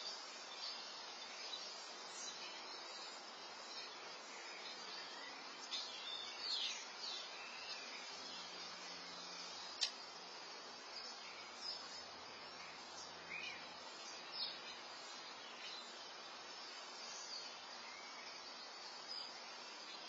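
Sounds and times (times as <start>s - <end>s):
bird chirps: 0.0s - 8.6s
faint steady hiss: 0.0s - 20.0s.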